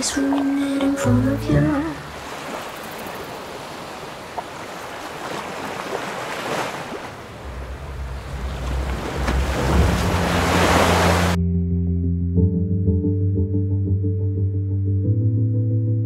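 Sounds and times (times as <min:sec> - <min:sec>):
waves washing onto beach: 0:01.8 - 0:11.4.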